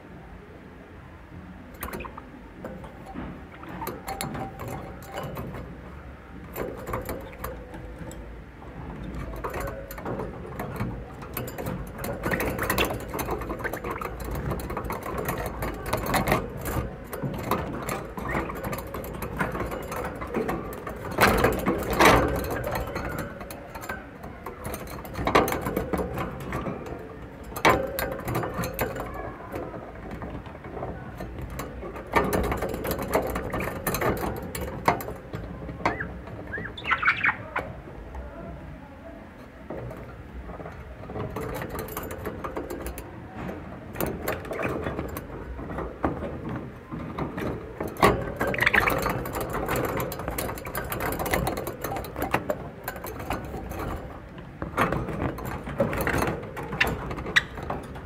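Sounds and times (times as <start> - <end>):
budgerigars chattering: 35.9 - 37.7.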